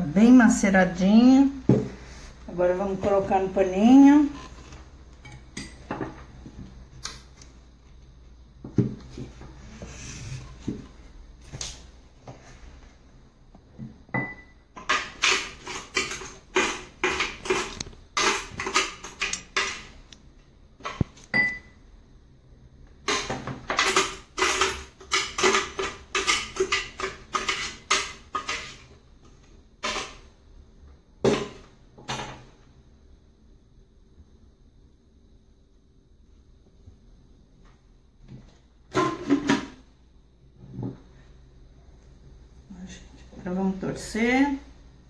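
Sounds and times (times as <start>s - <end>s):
spoon scraping blender jar: 14.8s - 19.8s.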